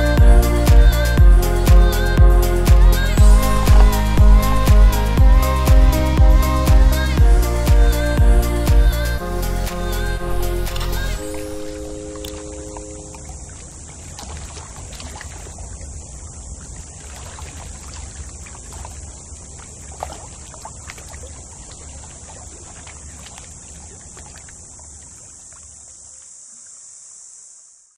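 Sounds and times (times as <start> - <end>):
steady low rumble: 0.0 - 11.2
high-pitched insect drone: 0.0 - 13.8
small splashes: 2.8 - 5.1, 10.6 - 26.8
sharp knock on boat: 3.2 - 4.9
water lapping against boat: 3.2 - 4.9, 10.7 - 26.4.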